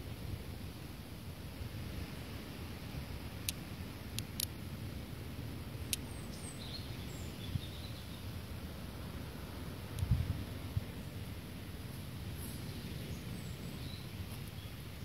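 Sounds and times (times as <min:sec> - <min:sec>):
faint high bird twitter: 0:05.8 - 0:08.4, 0:12.4 - 0:15.0
small birds chirping: 0:05.8 - 0:08.4, 0:12.4 - 0:15.0.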